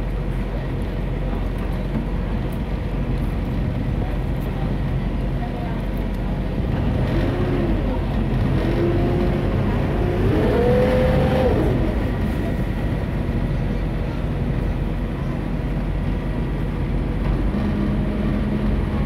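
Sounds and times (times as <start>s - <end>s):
boat engine humming: 0.0s - 19.0s.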